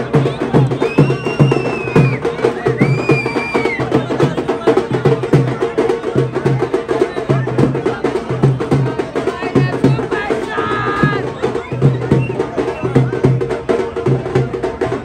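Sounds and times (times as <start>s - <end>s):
percussion music with drum beat: 0.0s - 15.0s
long high whistles: 0.7s - 3.8s.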